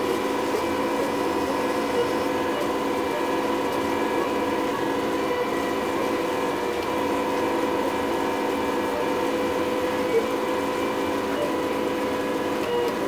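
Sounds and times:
stepper motors whining: 0.0 - 13.0.

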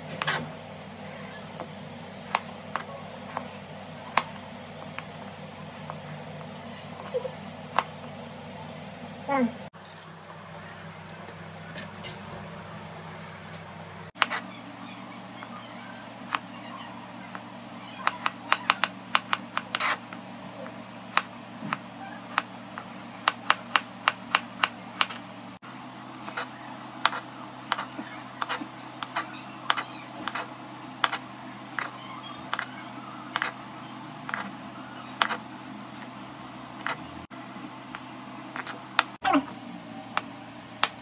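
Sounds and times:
knife chopping on plastic board: 26.3 - 31.2.

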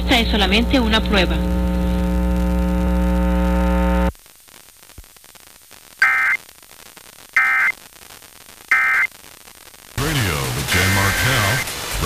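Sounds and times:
steady hum with overtones: 0.0 - 12.0
harsh digital data bursts: 6.0 - 6.4, 7.4 - 7.7, 8.7 - 9.1.

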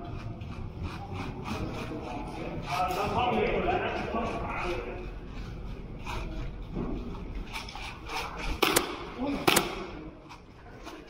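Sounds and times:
pistol shots cracking: 8.6 - 9.9.

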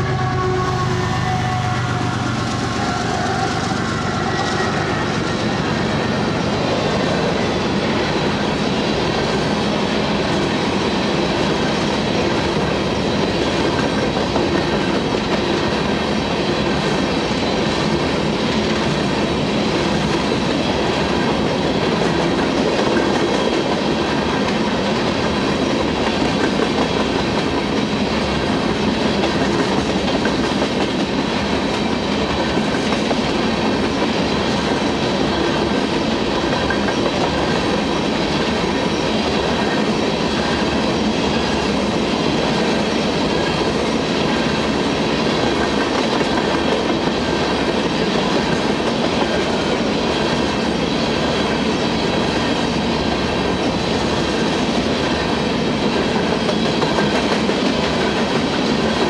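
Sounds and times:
train wheels rumbling on rails: 0.0 - 59.0.

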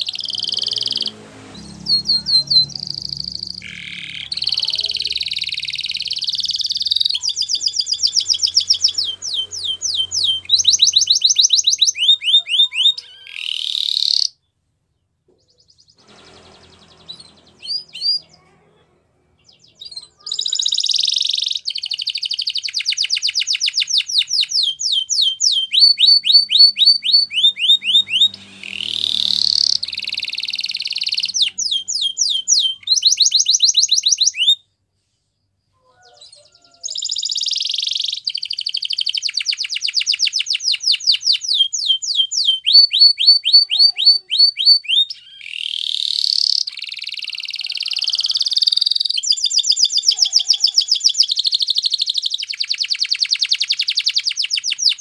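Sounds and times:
canary singing trills: 0.0 - 18.6, 19.3 - 34.7, 35.4 - 55.0
short bird chirps: 19.4 - 55.0.

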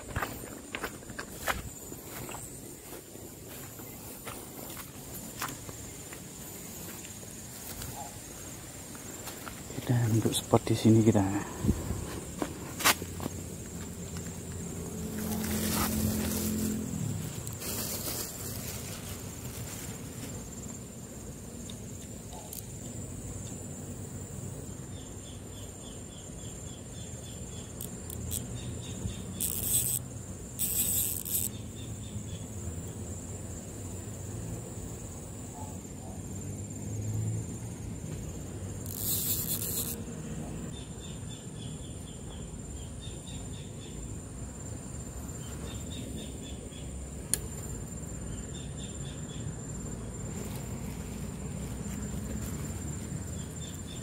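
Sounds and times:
insects buzzing: 0.0 - 54.0
hissing rustle: 15.2 - 20.5.

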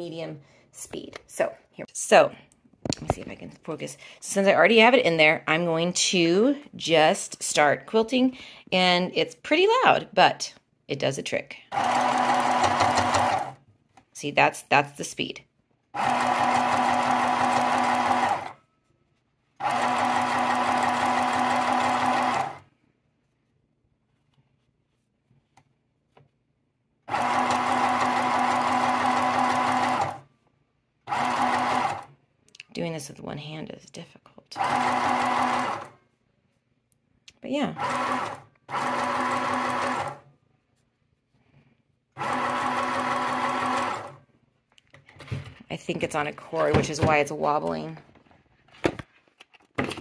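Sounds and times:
sewing machine stitching: 11.7 - 13.6, 16.0 - 18.6, 19.6 - 22.7, 27.1 - 30.3, 31.1 - 32.1, 34.6 - 36.0, 37.7 - 40.3, 42.2 - 44.2.

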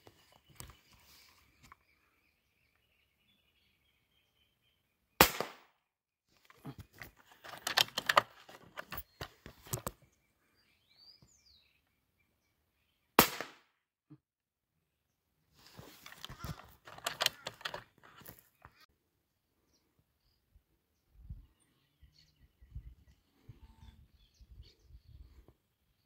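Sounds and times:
rifle shots: 5.2 - 5.7, 13.2 - 13.6
clicks and knocks: 6.8 - 10.0, 16.1 - 18.4.

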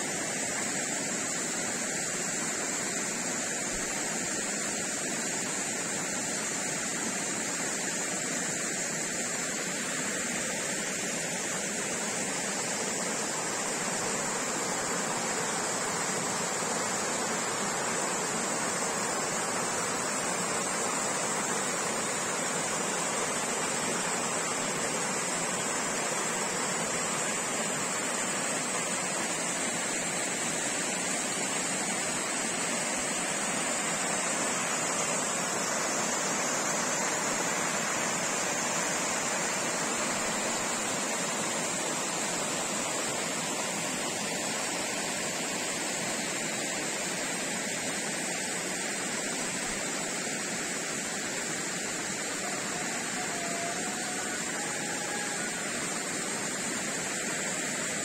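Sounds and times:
stream water rushing over rocks: 0.0 - 58.0.

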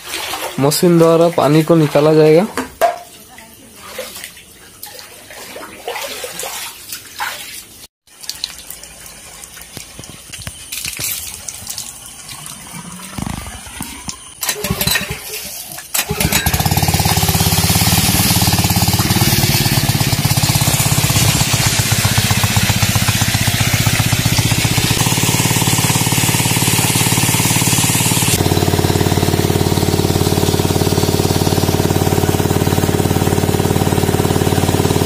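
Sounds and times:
water sloshing and splashing: 0.0 - 28.2
water gushing: 3.2 - 35.0
water pump engine running: 8.2 - 35.0.

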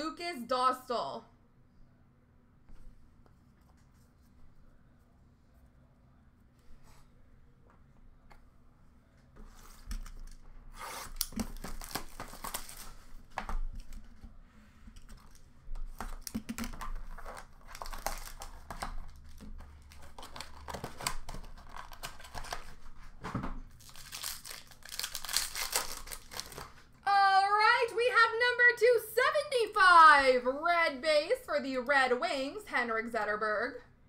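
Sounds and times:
plastic wrap tearing and crinkling: 10.0 - 14.1, 15.2 - 27.0.

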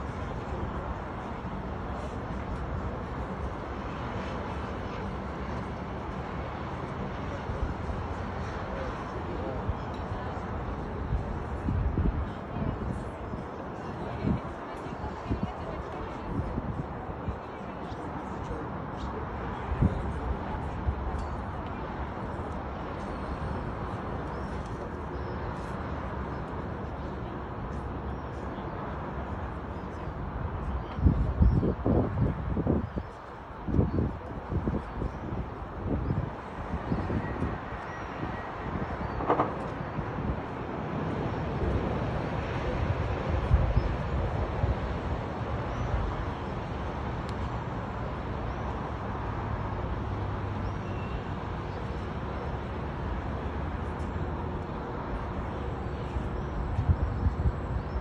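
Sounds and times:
city ambience low rumble and hiss: 0.0 - 58.0
wind on microphone: 10.9 - 13.4, 30.6 - 46.8.

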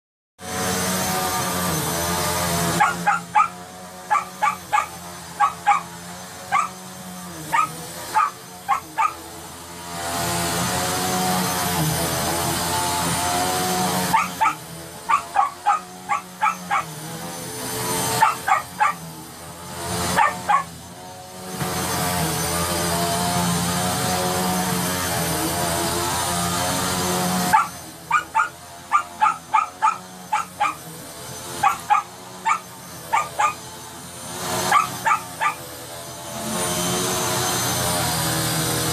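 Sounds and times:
vacuum cleaner droning: 0.4 - 38.9
small dog barking: 2.8 - 5.9, 6.5 - 6.8, 7.5 - 9.2, 14.1 - 17.0, 18.2 - 19.0, 20.1 - 20.7, 27.5 - 30.8, 31.6 - 33.6, 34.7 - 35.6.

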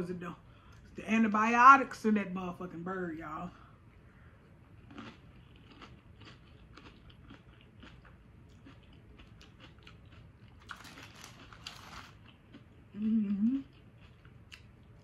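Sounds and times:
person chewing chips: 4.4 - 15.0.

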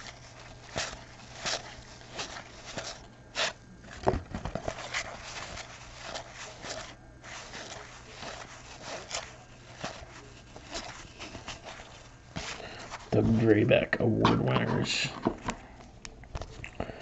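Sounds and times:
cards being flipped through: 0.0 - 13.4.

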